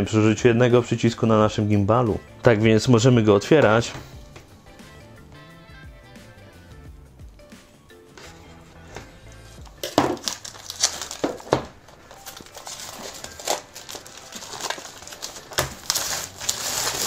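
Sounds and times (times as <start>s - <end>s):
packaging crinkling and rustling: 9.6s - 17.0s.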